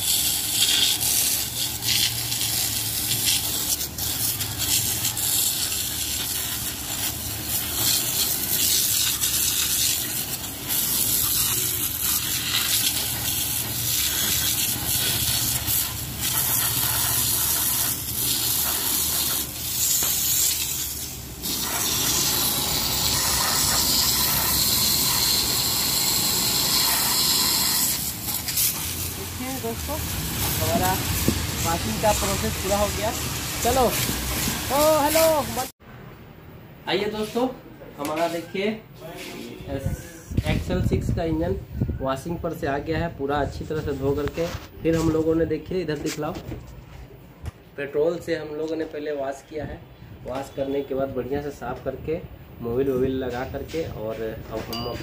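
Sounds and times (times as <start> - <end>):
water jet hissing and splashing: 0.0 - 35.8.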